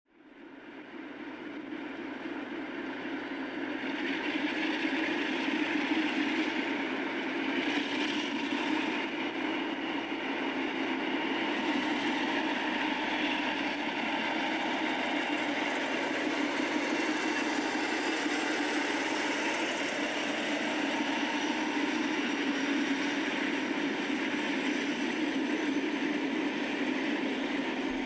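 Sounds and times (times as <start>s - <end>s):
diesel locomotive engine running: 1.7s - 28.0s.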